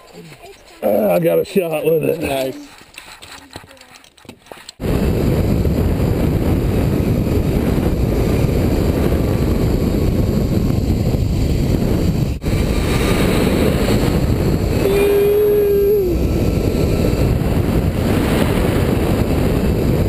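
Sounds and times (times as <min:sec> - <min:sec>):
wind buffeting microphone: 0:04.8 - 0:20.0.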